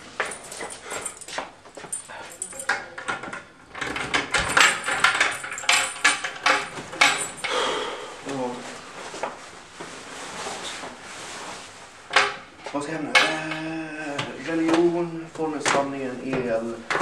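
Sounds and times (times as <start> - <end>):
padlock and keys rattling: 0.0 - 7.5
cloth rustling: 8.1 - 12.1.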